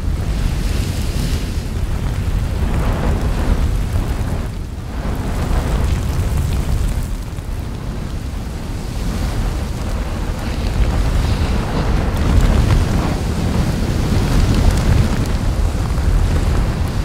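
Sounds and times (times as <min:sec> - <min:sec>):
deep rumble: 0:00.0 - 0:17.0
wind-like rushing noise: 0:00.0 - 0:17.0.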